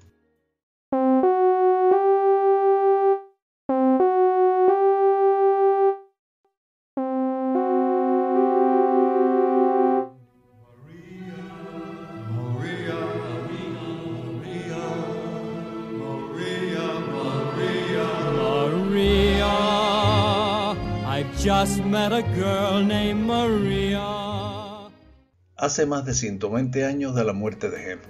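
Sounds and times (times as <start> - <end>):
synthesized keyboard tones: 1.0 - 6.1, 7.0 - 10.2
orchestral song with singing: 10.6 - 25.1.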